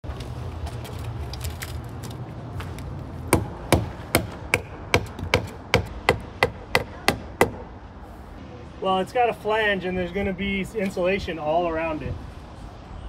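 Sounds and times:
hammer striking metal bracket: 3.4s - 7.7s.

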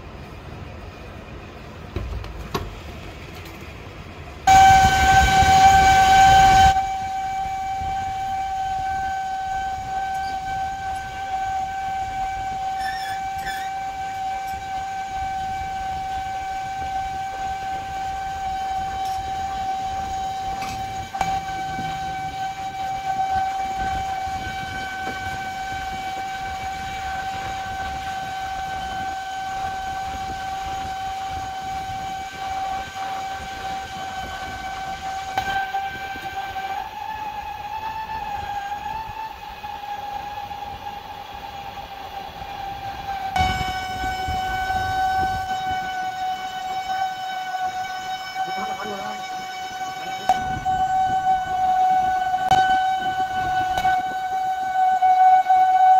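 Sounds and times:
low machine rumble: 0.0s - 55.9s
metal lathe whine: 0.0s - 55.9s.

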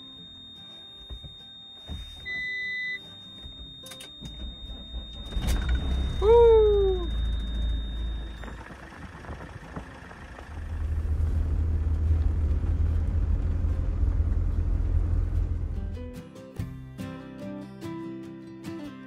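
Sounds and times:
steady high tone: 0.0s - 8.7s
engine running low rumble: 4.3s - 16.0s
loud falling cry: 6.1s - 7.2s.

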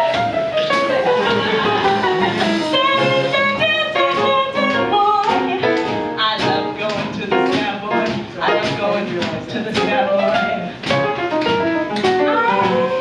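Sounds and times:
drum kit with cymbals: 0.0s - 13.0s
piano playing quick runs: 0.0s - 13.0s
woman singing: 1.4s - 10.7s, 12.2s - 13.0s.

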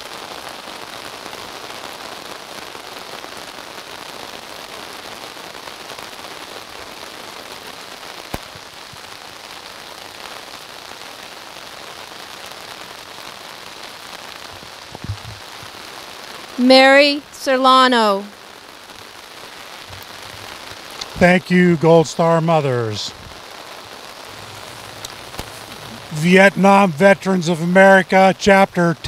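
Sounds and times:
steady rain falling: 0.0s - 29.0s.

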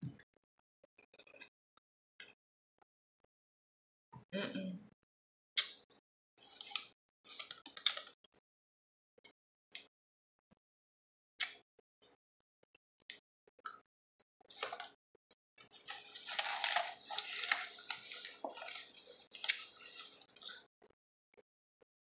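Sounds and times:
metal spoon crunching powder: 15.7s - 20.6s.

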